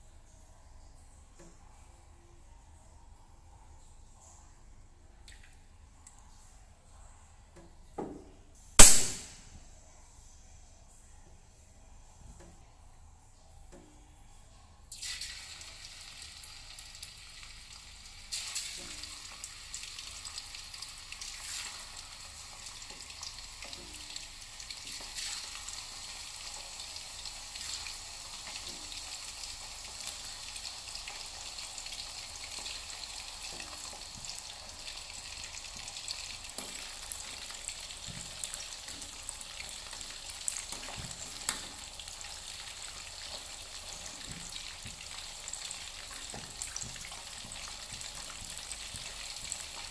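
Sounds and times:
chicken deep-frying in oil: 0:14.8 - 0:49.9.

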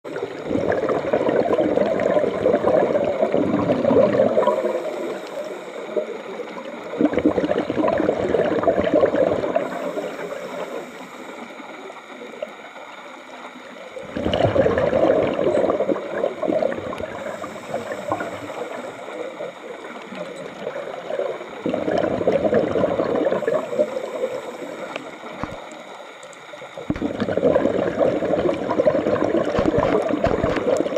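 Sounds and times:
bubbles gurgling from regulator: 0:00.0 - 0:10.9, 0:11.6 - 0:30.9
high hiss of inhale: 0:04.4 - 0:06.3, 0:09.6 - 0:11.8, 0:17.1 - 0:19.4, 0:23.5 - 0:25.4.

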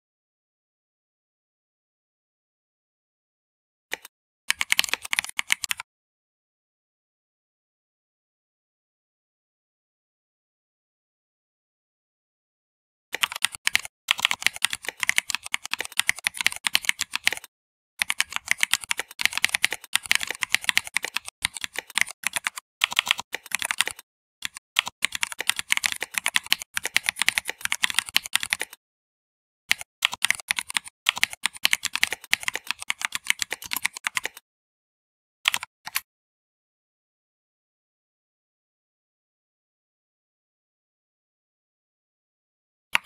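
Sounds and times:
fast typing on keyboard: 0:03.9 - 0:05.8, 0:13.2 - 0:28.8, 0:29.7 - 0:34.4, 0:35.5 - 0:36.0.

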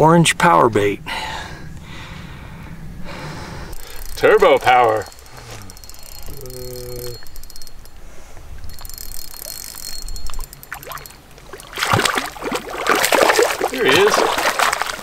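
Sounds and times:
fishing reel clicking: 0:03.7 - 0:12.3.

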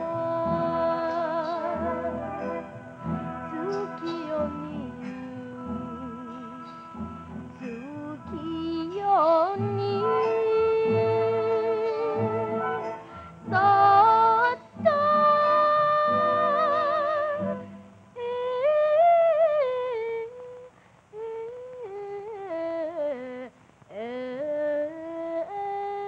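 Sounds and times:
girl singing: 0:00.0 - 0:02.6, 0:03.4 - 0:07.0, 0:07.6 - 0:26.0
instrumental accompaniment: 0:00.0 - 0:19.2.

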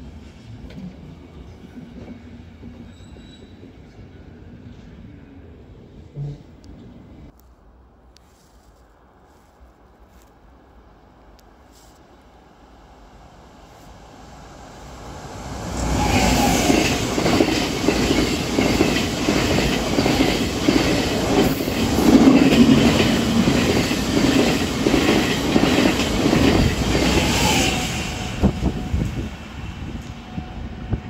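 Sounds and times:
train wheels clattering over rails: 0:15.9 - 0:28.6.

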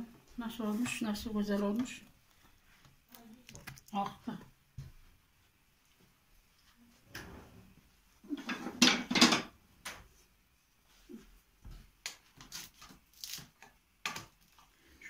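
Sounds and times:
utensils and dishes clattering: 0:08.3 - 0:09.5.

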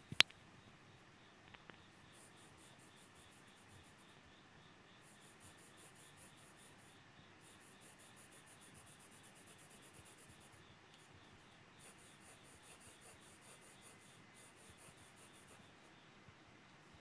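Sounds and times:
pencil scratching on paper: 0:05.0 - 0:11.1, 0:11.8 - 0:15.9.

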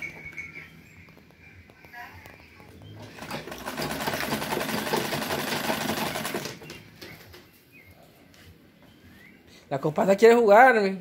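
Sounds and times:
sewing machine stitching: 0:03.0 - 0:06.7.

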